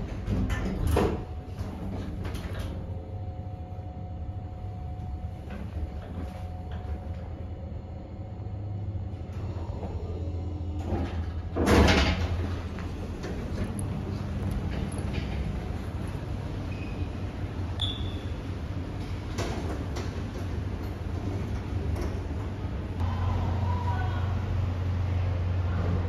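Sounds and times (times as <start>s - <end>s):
lift hum and whine: 0.0s - 26.0s
lift doors clunking: 10.7s - 23.0s.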